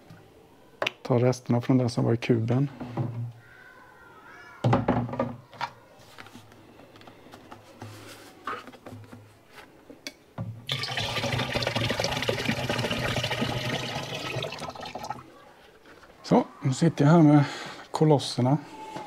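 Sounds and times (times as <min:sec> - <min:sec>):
water pouring into container: 0:10.7 - 0:15.3.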